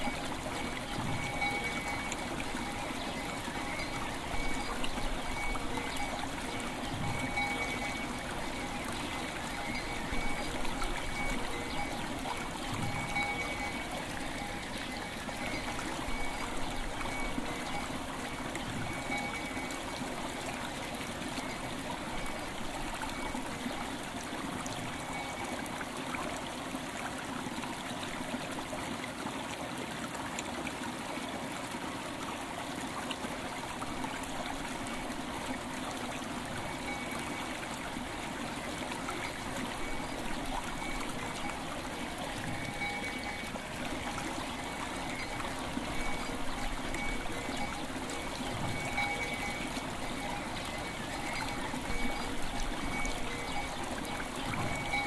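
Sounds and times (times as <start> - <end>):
river water flowing and trickling: 0.0 - 55.0.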